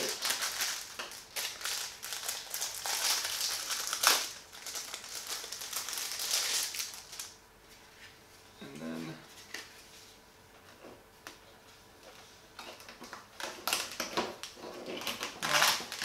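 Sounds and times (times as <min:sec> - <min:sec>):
plastic bag crinkling: 0:00.0 - 0:07.4, 0:13.0 - 0:16.0.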